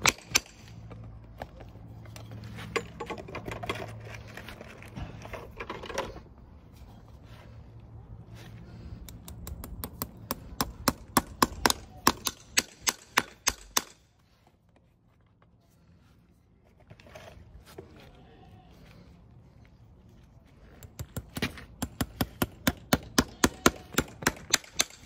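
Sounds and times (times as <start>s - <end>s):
hammer tapping horseshoe nail: 9.1s - 14.0s, 20.8s - 25.0s.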